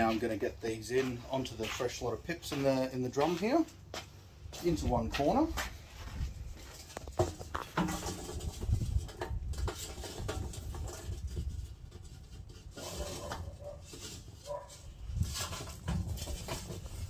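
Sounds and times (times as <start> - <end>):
charcoal clattering against metal: 6.7 - 17.0.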